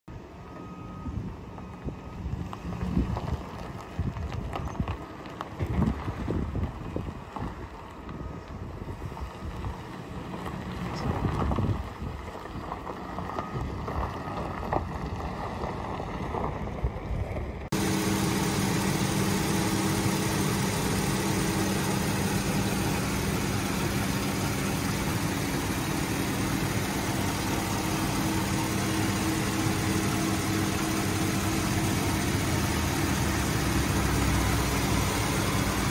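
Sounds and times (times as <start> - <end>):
engine idling close up: 0.1 - 35.9
gusty wind on microphone: 5.6 - 7.8, 11.0 - 12.7
faint engine running: 7.8 - 35.9.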